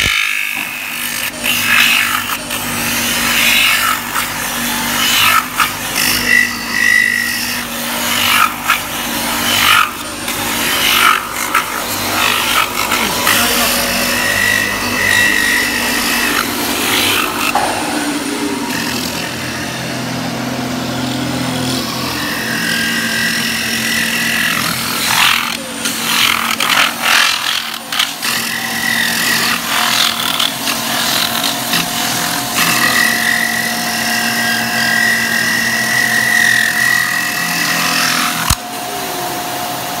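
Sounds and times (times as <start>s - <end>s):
metal spinning machine grinding: 0.0s - 39.9s
high machine whine: 0.0s - 40.0s.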